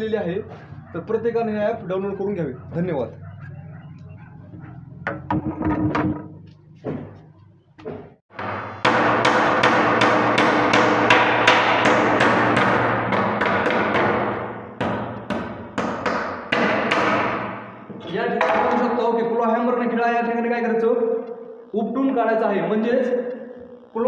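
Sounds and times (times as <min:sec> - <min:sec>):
hammer striking nail into wood: 0:08.4 - 0:17.6.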